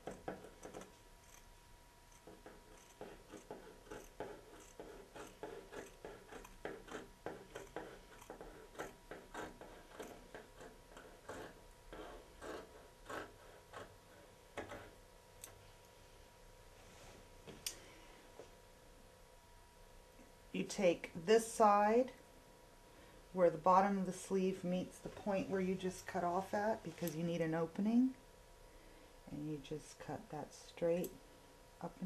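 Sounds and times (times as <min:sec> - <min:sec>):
scissors snipping fabric: 0:00.0 - 0:01.5, 0:02.1 - 0:13.3.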